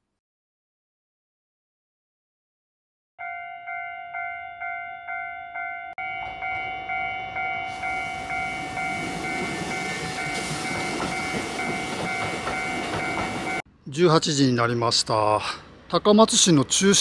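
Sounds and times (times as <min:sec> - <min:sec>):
level-crossing bell ringing: 0:03.2 - 0:13.6
train passing rumble: 0:04.2 - 0:13.6.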